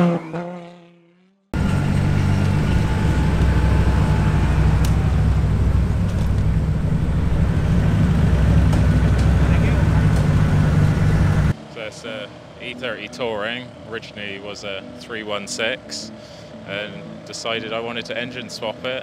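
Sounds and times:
car engine idling: 0:01.6 - 0:11.5.

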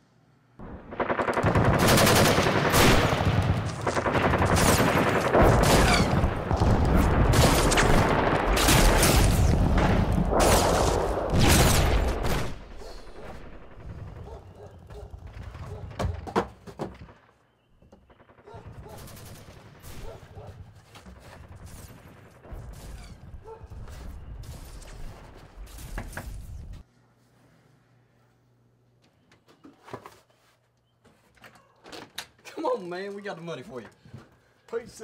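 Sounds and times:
video game automatic gunfire: 0:00.6 - 0:12.6.

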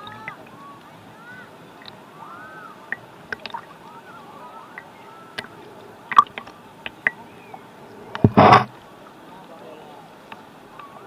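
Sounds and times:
seawater sloshing: 0:00.0 - 0:11.0
bubbly plinks: 0:02.9 - 0:03.7, 0:06.1 - 0:07.2.

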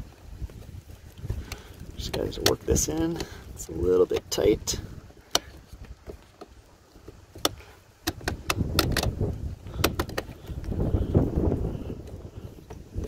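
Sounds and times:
rustling of hands and wires: 0:00.0 - 0:13.0
plastic connector clicks and scraping: 0:01.1 - 0:03.4, 0:04.0 - 0:10.8.

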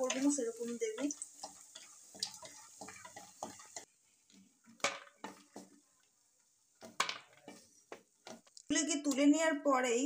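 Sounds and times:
spatula scraping a wok: 0:00.0 - 0:06.1, 0:06.7 - 0:08.5
oil sizzling: 0:00.0 - 0:10.0.

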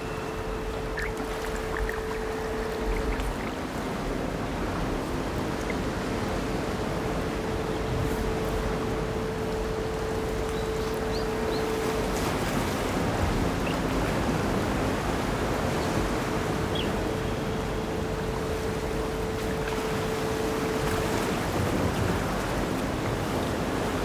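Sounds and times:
steady held tone: 0:00.0 - 0:04.6.

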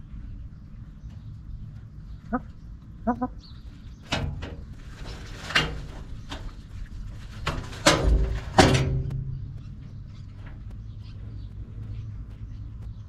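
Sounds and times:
hen clucking: 0:02.2 - 0:03.6
hen squawking: 0:02.3 - 0:03.4.

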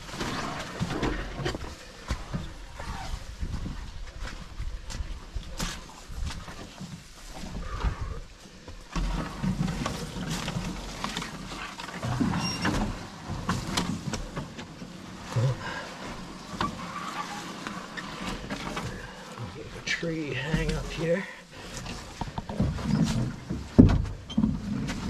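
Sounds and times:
footsteps crunching on dirt: 0:01.6 - 0:09.4
heavy grunting breaths: 0:07.5 - 0:08.8, 0:15.3 - 0:16.2
knocks and brush sounds: 0:08.8 - 0:25.0.

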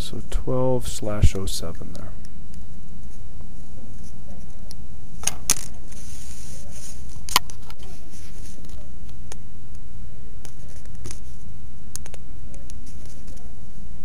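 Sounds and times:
steady low hum: 0:00.0 - 0:14.0
hand rubbing book cover: 0:05.8 - 0:08.9, 0:10.5 - 0:11.5.

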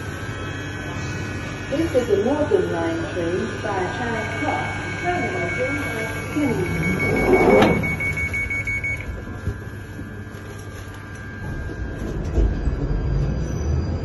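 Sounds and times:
train door warning beeping: 0:04.0 - 0:10.2
train doors closing clatter: 0:06.7 - 0:08.2
train rumble: 0:10.9 - 0:14.0.

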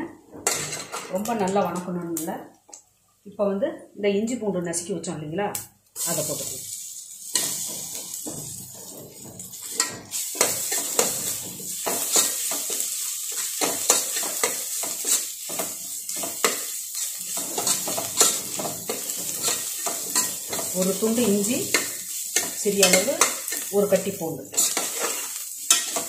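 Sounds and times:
onions sizzling in oil: 0:06.0 - 0:26.0
metal spoon scraping a pot: 0:13.6 - 0:23.7, 0:24.5 - 0:26.0.

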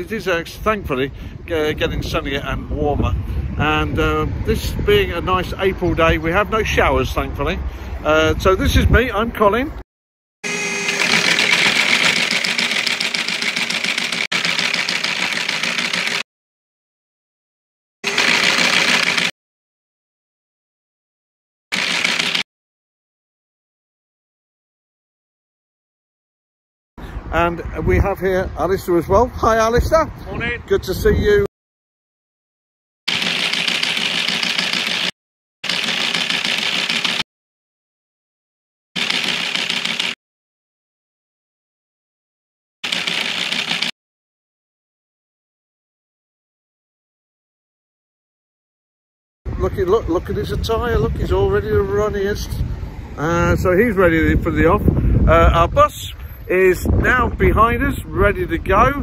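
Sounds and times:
rapid keyboard typing: 0:11.0 - 0:16.2, 0:18.1 - 0:19.3, 0:21.8 - 0:22.4, 0:33.1 - 0:35.1, 0:35.7 - 0:37.2, 0:39.0 - 0:40.2, 0:42.8 - 0:43.9.

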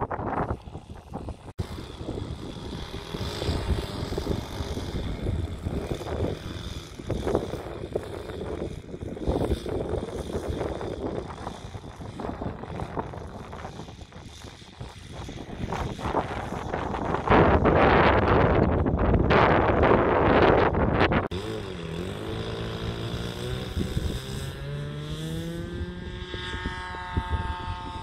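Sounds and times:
steady high whine: 0:00.0 - 0:18.3
model airplane engine running: 0:00.0 - 0:28.0
wind buffeting microphone: 0:00.0 - 0:28.0.

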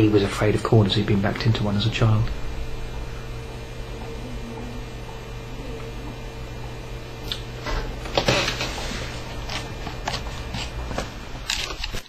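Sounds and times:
faint constant tone: 0:00.0 - 0:08.4
room tone hum: 0:00.0 - 0:12.0.

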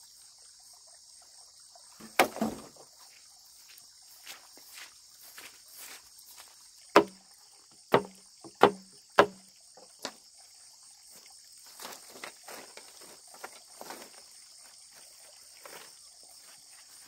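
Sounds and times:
insects droning: 0:00.0 - 0:17.0
tool striking wood: 0:02.0 - 0:02.7, 0:07.0 - 0:07.2, 0:07.9 - 0:09.5.

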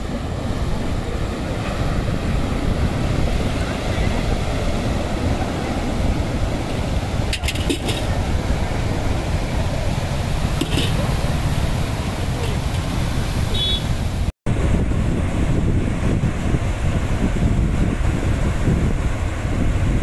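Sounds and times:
sea waves breaking on rocks: 0:00.0 - 0:14.3
wind rumble on microphone: 0:00.0 - 0:20.0.

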